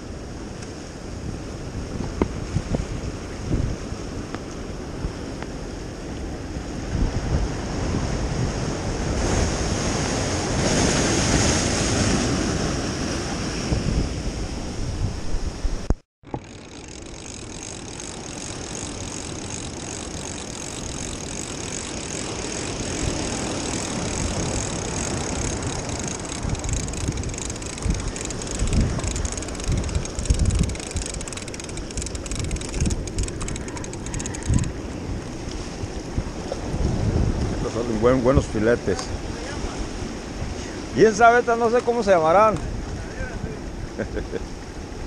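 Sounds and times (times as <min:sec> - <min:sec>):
wind rumbling on microphone: 0:00.0 - 0:41.2, 0:41.9 - 0:45.0.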